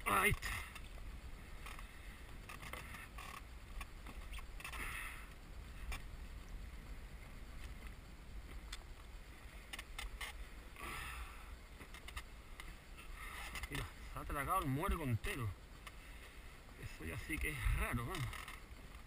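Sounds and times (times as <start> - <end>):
low steady rumble: 0.0 - 19.0.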